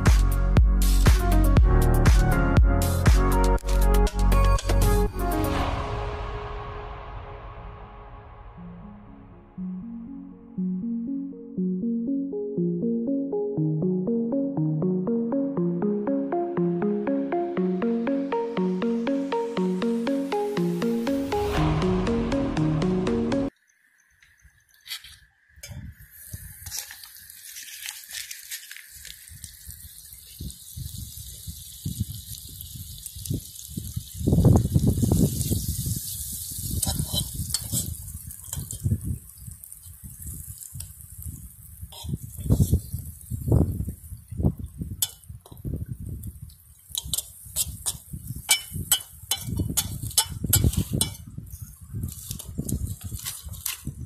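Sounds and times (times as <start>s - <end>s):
low rumble: 5.0s - 11.1s, 21.5s - 23.5s
butter sizzling in a pot: 26.0s - 51.3s
metal utensil clicking against pot: 45.0s - 45.2s, 47.0s - 51.2s.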